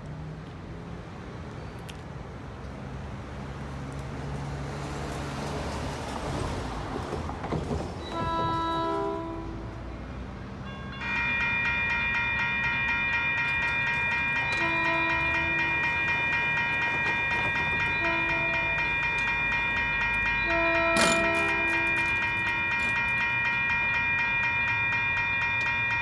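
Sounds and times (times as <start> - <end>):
bus passing: 0.0 - 26.0
crossing warning bells ringing: 7.7 - 26.0
distant train horn blasts: 8.0 - 11.3, 14.3 - 23.2.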